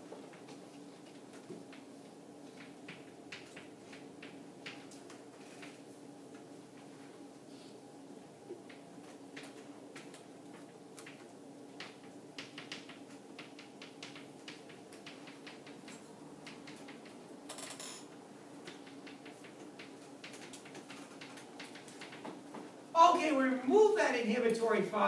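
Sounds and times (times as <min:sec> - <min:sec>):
low room hum: 0:00.0 - 0:25.0.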